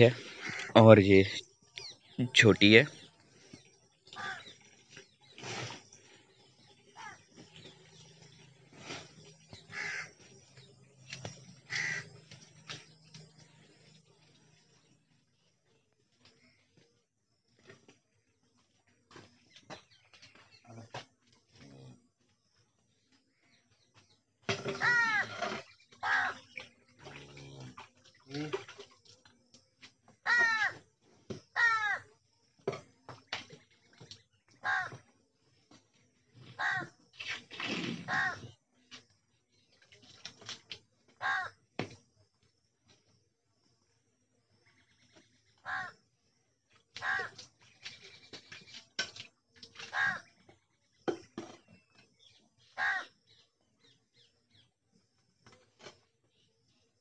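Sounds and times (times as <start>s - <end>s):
crow cawing: 0.3s - 0.8s, 4.2s - 4.5s, 9.7s - 10.1s, 11.7s - 12.2s, 24.8s - 25.3s, 26.0s - 26.4s, 30.2s - 30.8s, 31.6s - 32.0s, 34.6s - 35.0s, 36.6s - 36.9s, 41.2s - 41.6s, 45.6s - 46.0s, 47.0s - 47.3s, 49.9s - 50.2s, 52.8s - 53.1s.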